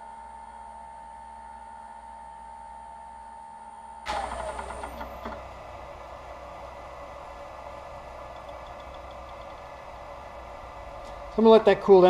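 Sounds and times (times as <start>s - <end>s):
loud rattle with knocks: 4.1s - 11.4s
wood lathe motor whine: 4.1s - 12.0s.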